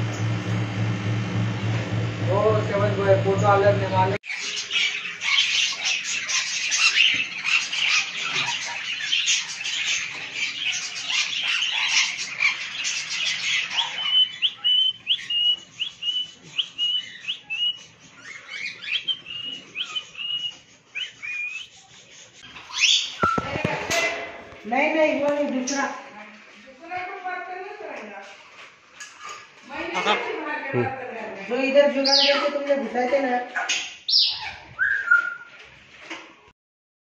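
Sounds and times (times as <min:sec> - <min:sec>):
parrots chattering and chirping: 0:04.2 - 0:24.7, 0:28.4 - 0:36.2.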